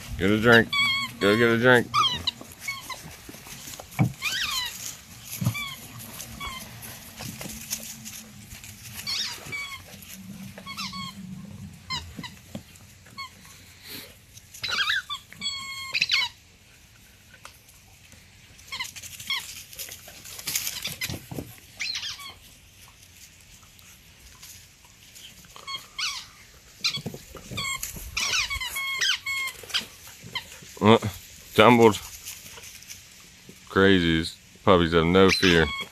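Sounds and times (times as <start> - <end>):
rubber squeaky toy squeaking: 0.4 - 3.1, 4.0 - 6.8, 9.0 - 10.0, 10.6 - 11.3, 11.9 - 13.4, 14.6 - 16.4, 18.7 - 19.5, 21.8 - 22.4, 25.6 - 30.4, 35.3 - 35.9.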